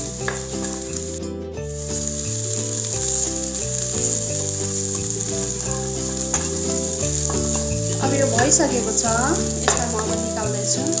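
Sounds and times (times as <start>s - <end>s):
background music of sustained chords: 0.0s - 11.0s
food sizzling in a pan: 0.0s - 11.0s.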